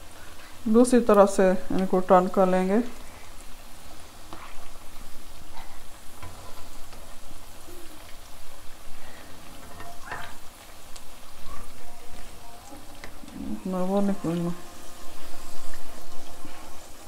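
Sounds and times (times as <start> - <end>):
food deep-frying in oil: 0.0 - 17.0
spatula scraping pan: 3.9 - 7.5, 9.0 - 10.5.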